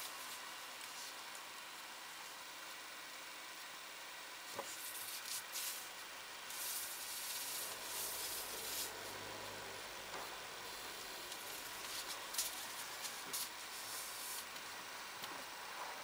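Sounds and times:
car rubbing and hissing: 0.0s - 16.0s
scraping bursts: 6.5s - 14.6s.

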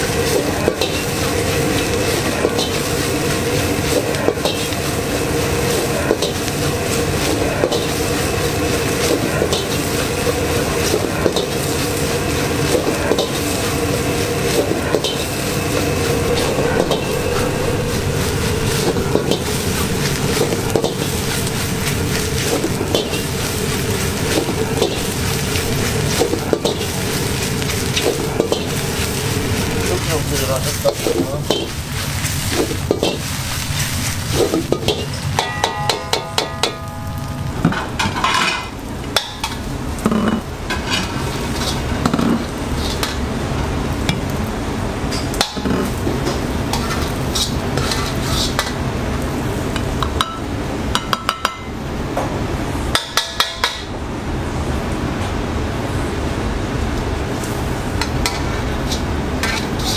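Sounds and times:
steady rushing noise: 0.0s - 38.3s
rice sizzling in a wok: 0.0s - 59.9s
metal ladle scraping a wok: 46.7s - 48.8s, 58.2s - 59.9s.

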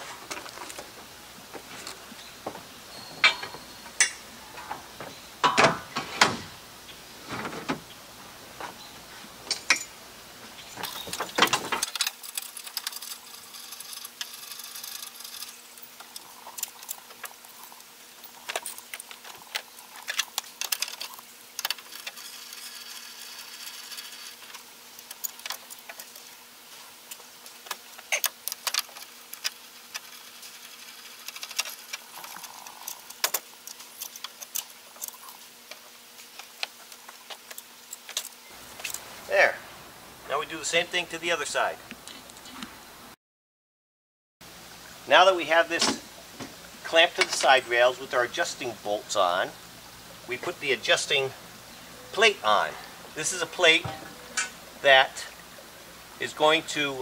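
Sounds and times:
metal clamps clicking and clanking: 3.1s - 6.4s.

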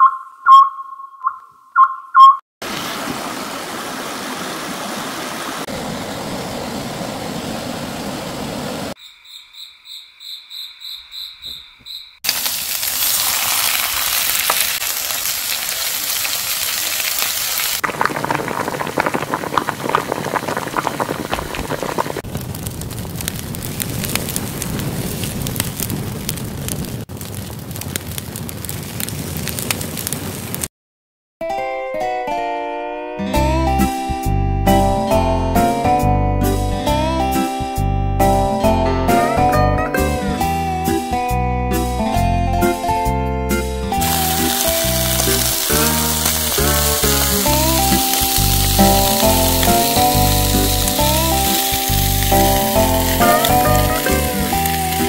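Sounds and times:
repeating high chirp: 0.0s - 2.4s
steady hissing noise: 44.0s - 55.0s.

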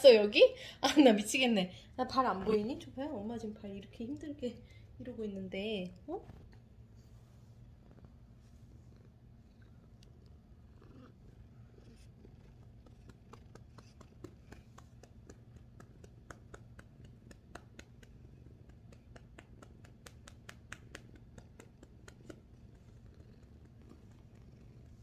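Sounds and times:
cat purring: 2.3s - 25.0s
faint clicks and scratchy ticks: 8.8s - 25.0s.

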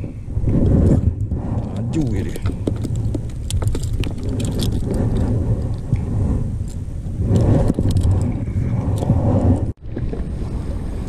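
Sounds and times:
wind buffeting microphone: 0.0s - 11.0s
fishing tackle clicks: 2.4s - 5.8s.

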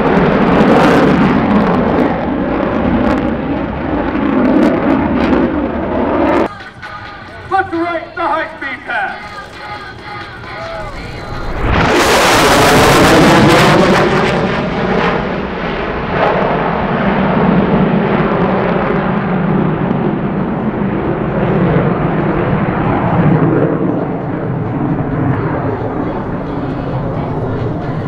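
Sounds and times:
jet engines on afterburner: 0.0s - 28.0s.

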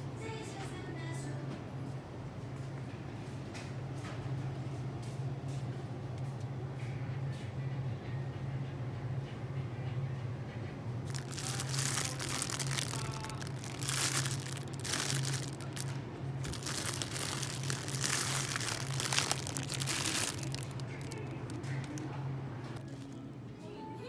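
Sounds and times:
steady low hum: 0.0s - 23.6s
plastic packaging crinkling: 11.1s - 22.1s.

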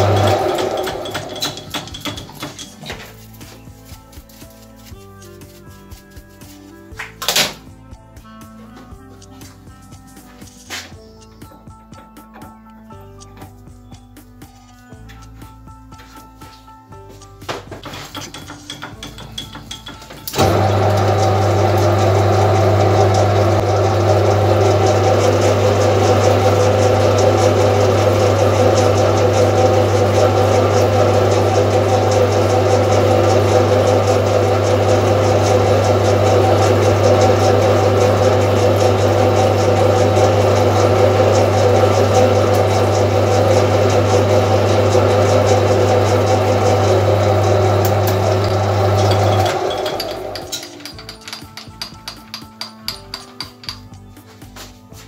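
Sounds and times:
metal lathe humming: 0.0s - 2.9s, 18.2s - 53.8s.

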